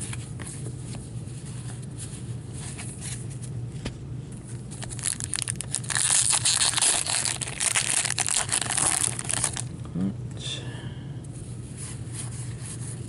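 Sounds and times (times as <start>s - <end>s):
low steady hum: 0.0s - 13.0s
trading cards being handled: 4.4s - 9.7s
plastic wrapper torn and crinkled: 4.7s - 9.7s.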